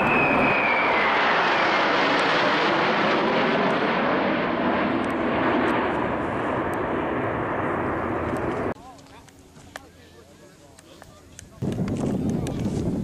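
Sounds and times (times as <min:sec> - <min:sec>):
jet engines roaring overhead: 0:00.0 - 0:09.8.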